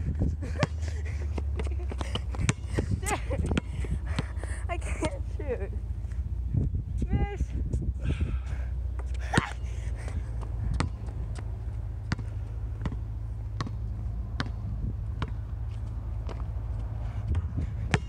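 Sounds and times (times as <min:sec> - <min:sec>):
wind rumble on microphone: 0:00.0 - 0:18.0
basketball bouncing on hard court: 0:01.5 - 0:04.4, 0:09.0 - 0:14.6, 0:15.2 - 0:16.5, 0:17.3 - 0:18.0.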